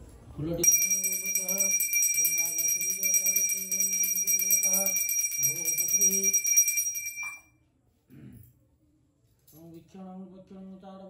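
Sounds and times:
brass hand bell ringing: 0.6s - 7.4s.

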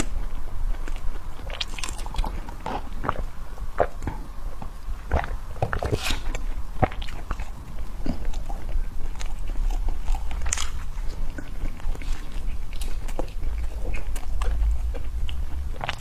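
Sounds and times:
cake being bitten and chewed: 0.0s - 16.0s.

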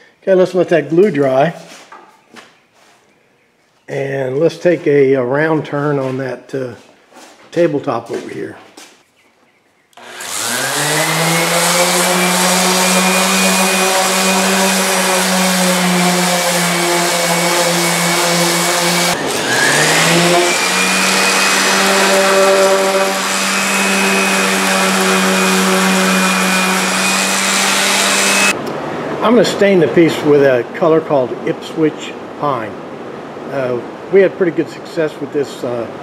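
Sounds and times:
orbital sander on wood: 10.0s - 28.6s.

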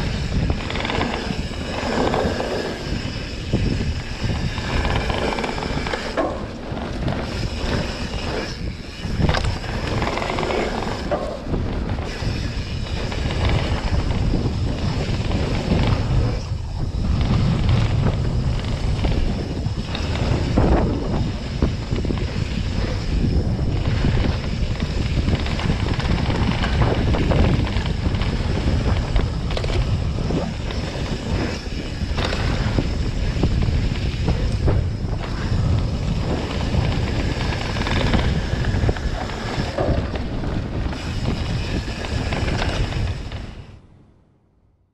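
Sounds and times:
bike tyres rumbling on dirt: 0.0s - 43.8s
wind buffeting microphone: 0.0s - 43.9s.

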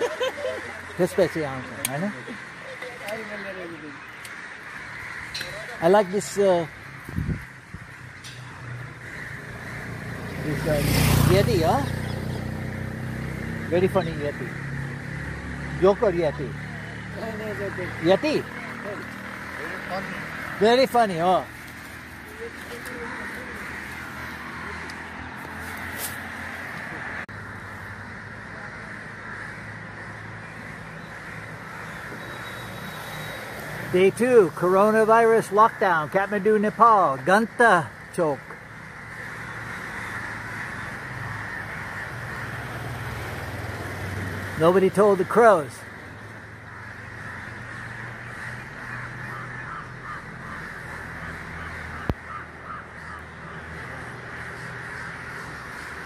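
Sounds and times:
crows cawing: 0.0s - 56.0s.

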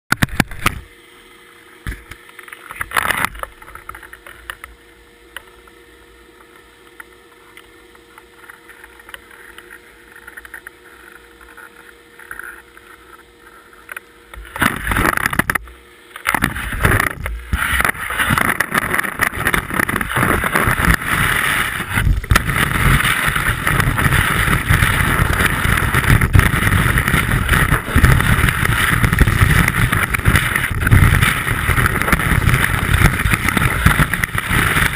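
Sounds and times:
skis knocking and shuffling: 14.4s - 34.9s
skis scraping through snow: 16.3s - 34.9s.

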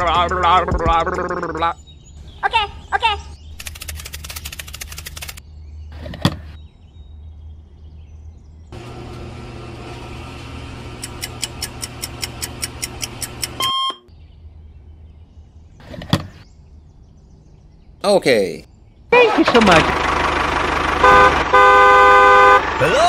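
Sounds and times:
petrol pump motor hum: 8.8s - 13.7s
pump meter clicking: 11.0s - 13.9s
short beep: 13.6s - 14.1s.

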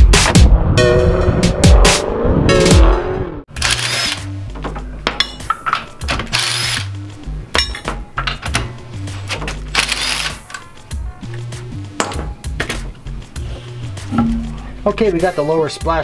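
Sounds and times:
electronic music with bass line: 11.5s - 16.0s.

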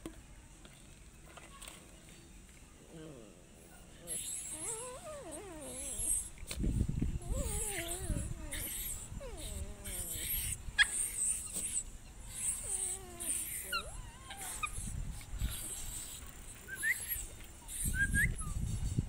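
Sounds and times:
puppies whimpering and whining: 4.0s - 6.4s, 7.1s - 18.9s.

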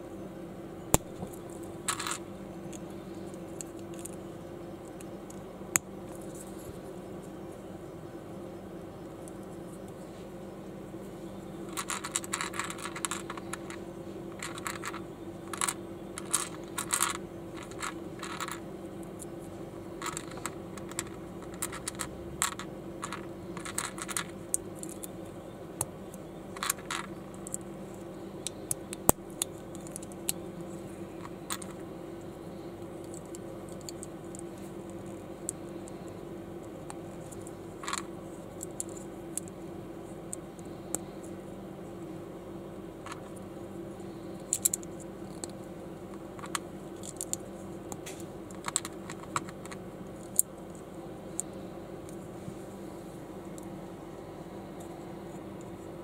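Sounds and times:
steady low hum: 0.0s - 56.0s
plastic bricks clicking and rattling: 1.0s - 4.2s, 11.7s - 13.8s, 14.4s - 18.6s, 20.0s - 25.2s, 26.6s - 27.7s, 31.2s - 31.8s, 37.0s - 39.5s, 46.4s - 47.4s, 48.0s - 50.5s.

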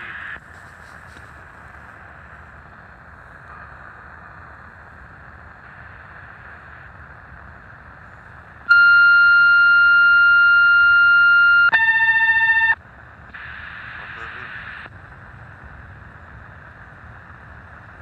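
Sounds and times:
radio static hiss: 0.0s - 18.0s
steady high tone signal: 8.6s - 14.8s.

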